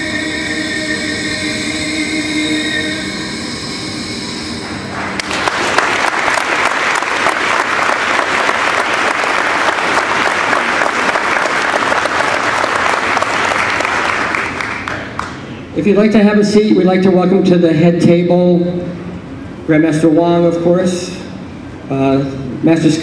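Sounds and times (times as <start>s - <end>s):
audience clapping: 4.6s - 15.5s.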